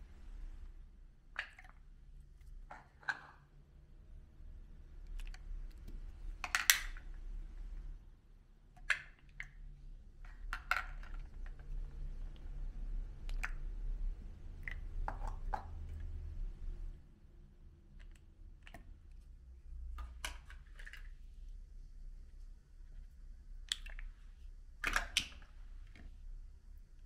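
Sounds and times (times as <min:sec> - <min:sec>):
low steady hum: 0:00.0 - 0:27.0
plastic cups clicking and crinkling: 0:01.3 - 0:03.5, 0:05.0 - 0:07.2, 0:08.8 - 0:12.5, 0:13.2 - 0:13.7, 0:14.5 - 0:16.2, 0:17.9 - 0:21.2, 0:24.8 - 0:26.2.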